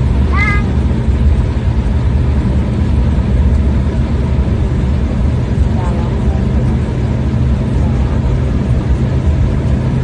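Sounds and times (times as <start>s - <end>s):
vehicle rumble from inside: 0.0s - 10.0s.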